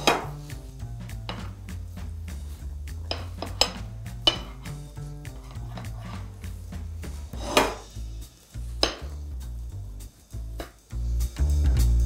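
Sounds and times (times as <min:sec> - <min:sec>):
background music with bass line: 0:00.0 - 0:12.0
metal knife scraping a plate: 0:05.4 - 0:06.4, 0:07.4 - 0:07.8.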